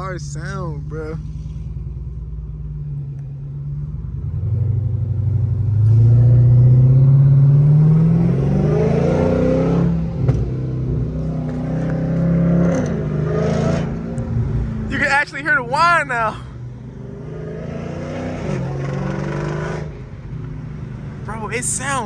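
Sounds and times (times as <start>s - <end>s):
car engine accelerating: 0.0s - 22.0s.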